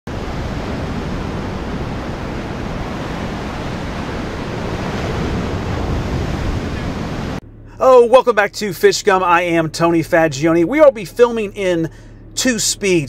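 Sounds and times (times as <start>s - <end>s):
wind rumbling on microphone: 0.1s - 7.4s
ocean surf breaking: 0.1s - 8.4s.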